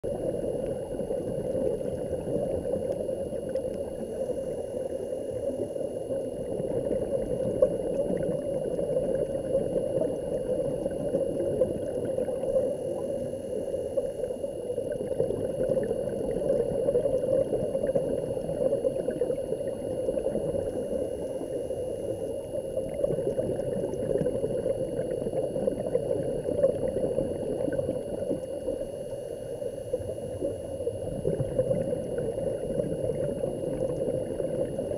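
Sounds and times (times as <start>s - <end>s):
muffled underwater water rush: 0.0s - 34.9s
faint high-pitched whine: 0.1s - 34.9s.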